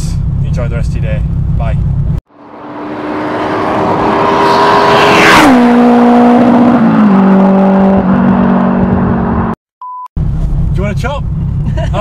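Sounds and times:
car engine passing at speed: 2.3s - 9.6s.

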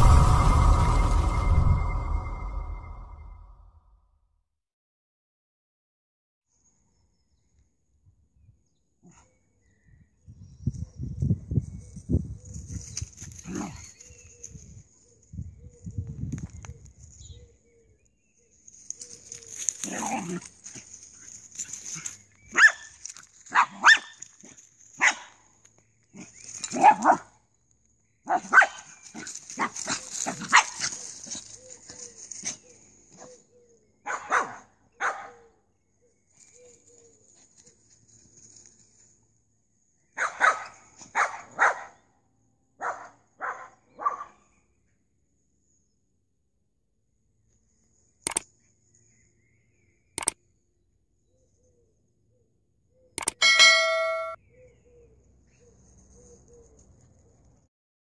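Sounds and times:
small dog barking: 22.5s - 22.9s, 23.5s - 25.4s, 26.2s - 27.3s, 28.3s - 31.0s, 34.0s - 35.5s, 40.2s - 42.0s, 42.8s - 44.4s
small dog yelping: 22.5s - 22.9s, 23.5s - 24.2s, 29.6s - 31.4s.

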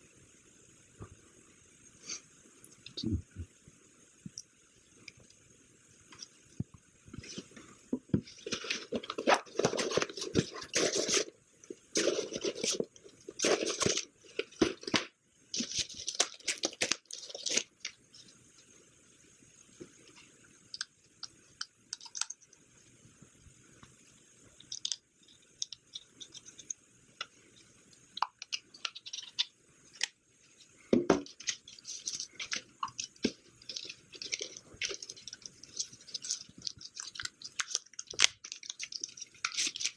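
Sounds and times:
plastic and paper crinkling: 7.2s - 18.2s, 31.0s - 39.9s.

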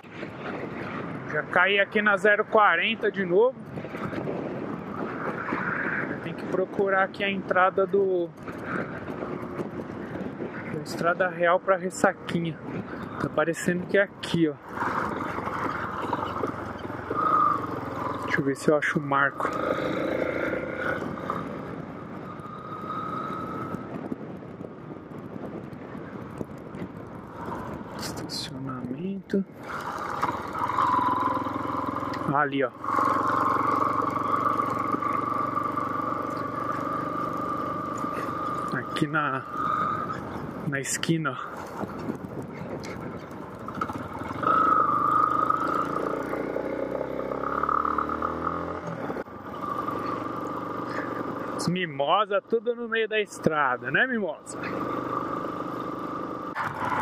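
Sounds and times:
wind and road noise: 0.0s - 57.0s
motorcycle engine running: 14.6s - 28.1s, 29.5s - 40.8s, 41.4s - 57.0s.

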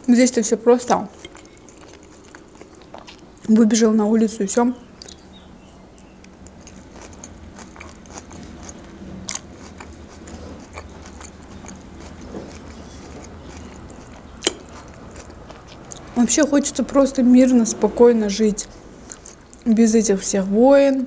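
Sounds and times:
chewing salad: 0.0s - 19.8s
metal fork clinking on plate: 1.2s - 1.9s.

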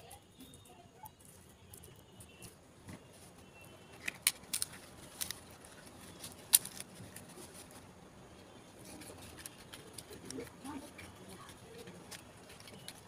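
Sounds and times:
leaf rustling and crackling: 4.0s - 7.9s.

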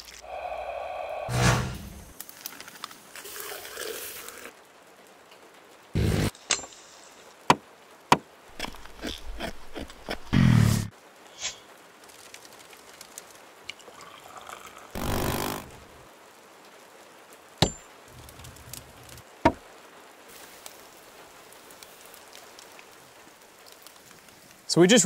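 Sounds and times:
knife scraping wood: 8.6s - 10.3s, 15.0s - 15.8s.

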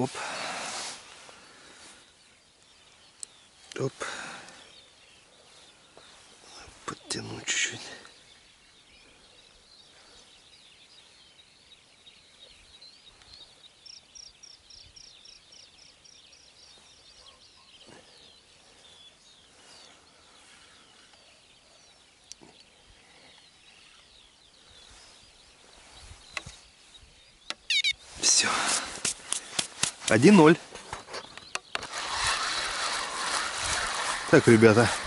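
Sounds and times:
birds chirping: 0.0s - 35.0s
evenly spaced high bird notes: 27.6s - 28.5s.

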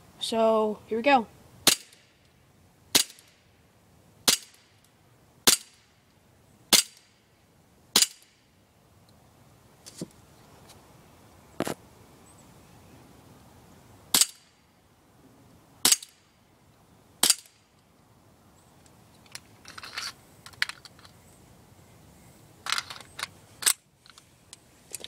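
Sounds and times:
airsoft pistol shots: 1.6s - 2.0s, 2.9s - 3.3s, 4.2s - 4.6s, 6.7s - 7.1s, 8.0s - 8.3s, 14.1s - 14.4s, 15.8s - 16.2s, 17.2s - 17.6s
clicks and clatter: 19.1s - 21.2s, 22.6s - 25.0s.

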